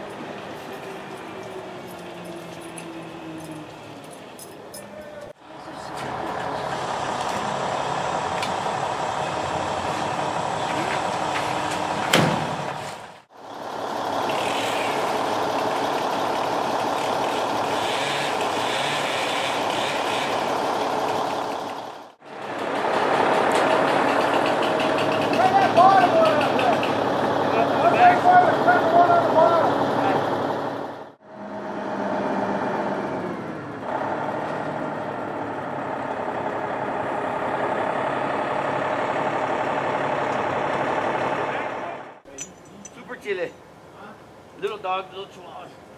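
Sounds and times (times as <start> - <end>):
crane engine running: 5.4 - 42.2
chainsaw cutting tree limbs: 14.0 - 27.5.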